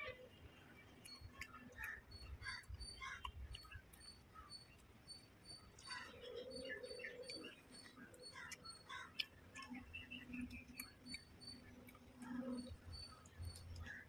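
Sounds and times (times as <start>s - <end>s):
person chewing food: 0.9s - 14.0s
steady light ticking: 0.9s - 14.0s.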